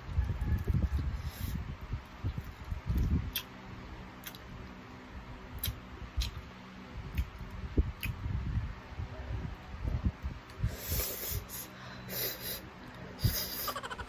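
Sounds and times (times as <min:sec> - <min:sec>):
wet chewing and nibbling: 0:01.9 - 0:03.6, 0:04.2 - 0:04.8, 0:05.6 - 0:06.5, 0:07.1 - 0:08.2.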